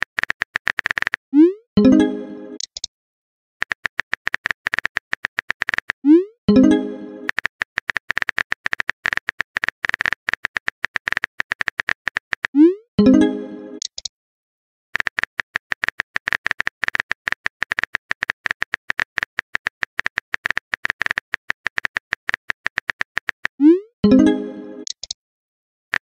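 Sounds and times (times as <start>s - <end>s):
smartphone keyboard tapping clicks: 7.3s - 12.5s.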